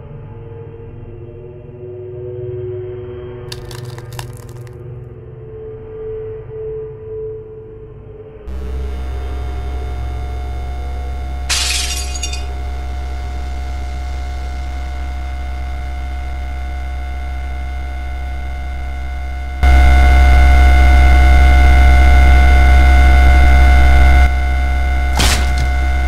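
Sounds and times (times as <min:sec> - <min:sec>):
low droning hum: 0:08.5 - 0:26.0.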